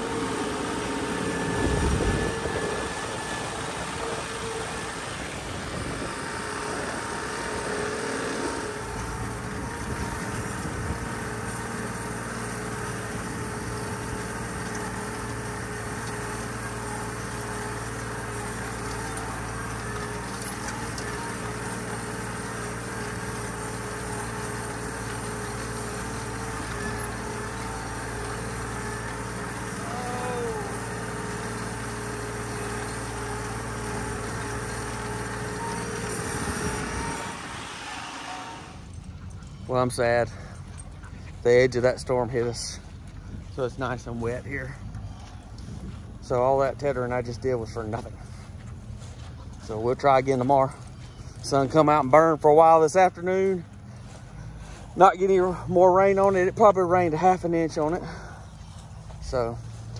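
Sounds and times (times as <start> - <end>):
hay tedder: 0.0 - 59.9
tractor engine running: 0.0 - 59.9
wind buffeting microphone: 1.2 - 7.8, 8.4 - 11.6, 36.2 - 37.8.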